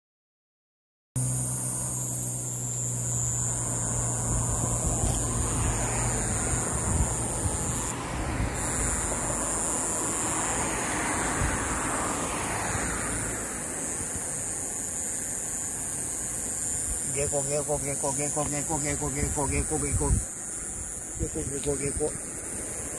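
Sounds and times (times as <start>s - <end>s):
low hum: 1.2s - 14.7s
distant road traffic: 1.2s - 22.9s
high hiss: 1.2s - 22.9s.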